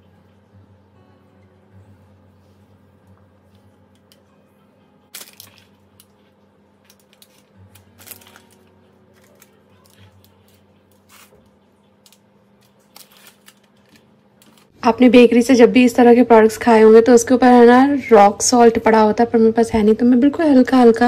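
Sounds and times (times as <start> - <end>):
low steady hum: 0.0 - 21.0
parchment paper rustling: 5.1 - 14.7.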